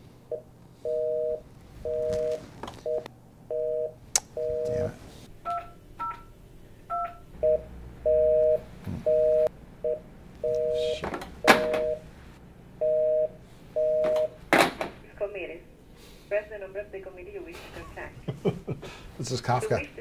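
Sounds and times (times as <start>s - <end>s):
busy signal beeping: 0.8s - 4.9s, 6.9s - 12.0s, 12.8s - 14.4s
telephone keys beeping: 1.0s - 3.1s, 10.4s - 12.0s, 13.8s - 14.4s.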